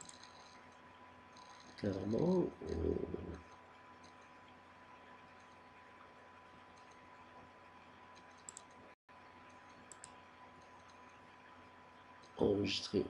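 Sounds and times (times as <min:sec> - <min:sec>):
computer mouse clicks: 0:00.0 - 0:00.8, 0:01.4 - 0:02.8, 0:03.4 - 0:04.4, 0:05.3 - 0:05.6, 0:06.7 - 0:07.0, 0:08.1 - 0:08.8, 0:09.4 - 0:11.2
thin steady whine: 0:00.0 - 0:13.0.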